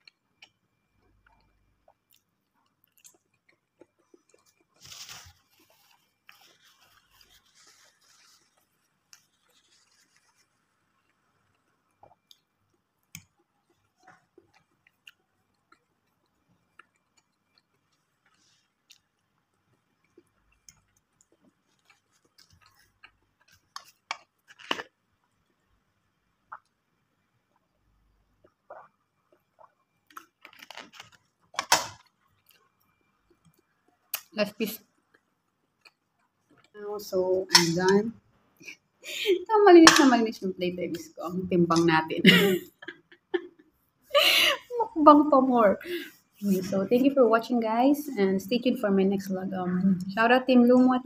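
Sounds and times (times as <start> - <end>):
chewing and mouth sounds: 0.0 - 4.8
crackling rustle: 3.8 - 11.7, 30.1 - 32.7.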